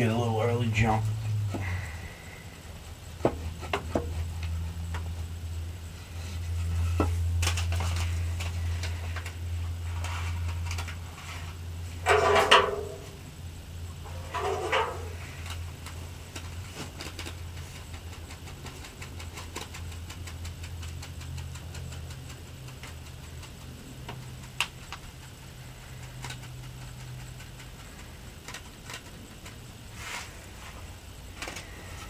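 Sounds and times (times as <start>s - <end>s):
low motor-like hum: 0.0s - 32.0s
seeds ticking into soil: 15.3s - 30.3s.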